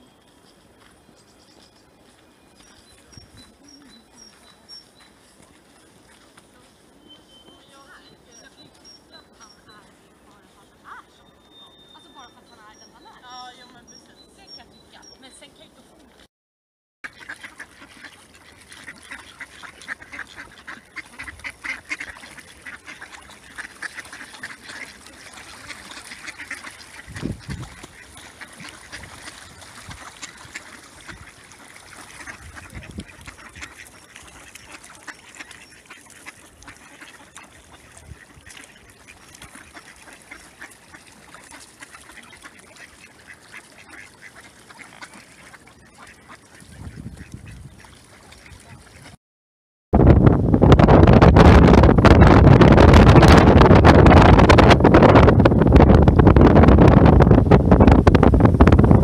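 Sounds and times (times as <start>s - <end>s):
ducks quacking: 2.0s - 16.0s, 17.0s - 49.2s.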